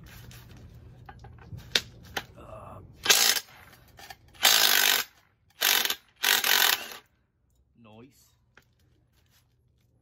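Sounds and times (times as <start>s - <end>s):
cordless power tool bursts: 3.0s - 3.5s, 4.4s - 7.0s.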